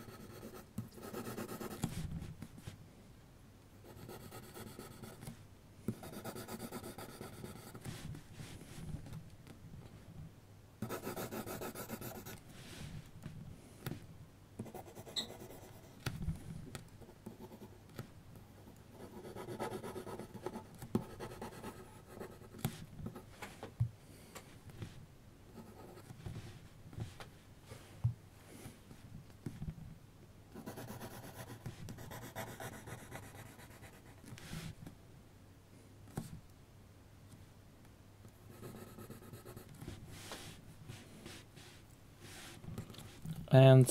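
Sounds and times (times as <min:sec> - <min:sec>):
pencil scratching on paper: 0:00.0 - 0:02.1, 0:03.8 - 0:05.3, 0:05.9 - 0:08.0, 0:10.8 - 0:12.4, 0:14.6 - 0:16.0, 0:17.2 - 0:17.8, 0:18.6 - 0:23.2, 0:25.6 - 0:26.2, 0:30.6 - 0:34.6, 0:38.5 - 0:41.4.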